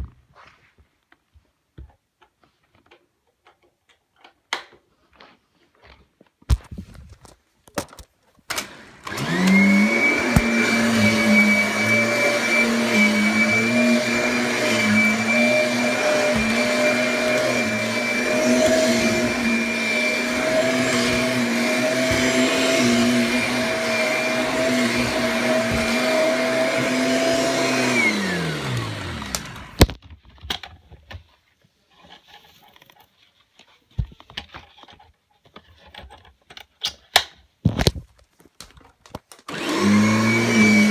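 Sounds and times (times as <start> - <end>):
vacuum cleaner motor whining: 8.5 - 30.0, 39.3 - 40.9.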